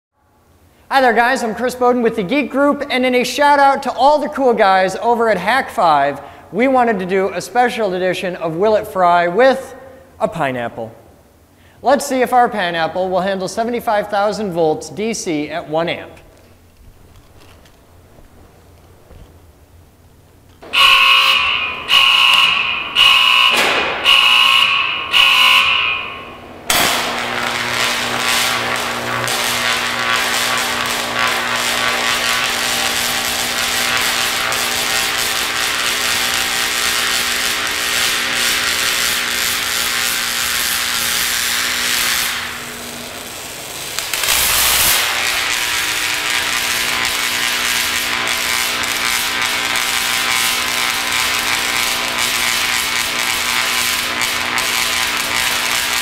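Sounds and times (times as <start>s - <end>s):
steady electrical hum: 0.2s - 56.0s
electric arc crackling and buzzing: 14.9s - 56.0s
loud beeps: 20.7s - 26.3s.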